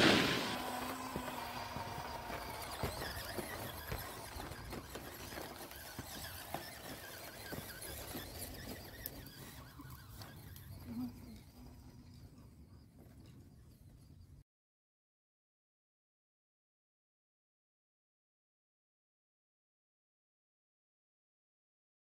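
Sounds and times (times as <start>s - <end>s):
toy car motor whine: 0.0s - 14.2s.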